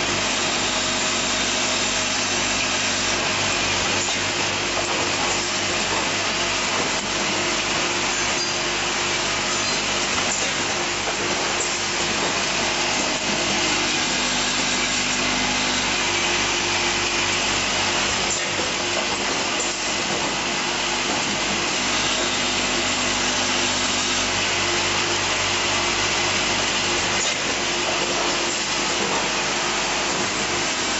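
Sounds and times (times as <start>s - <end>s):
riveting machine running: 0.0s - 30.9s.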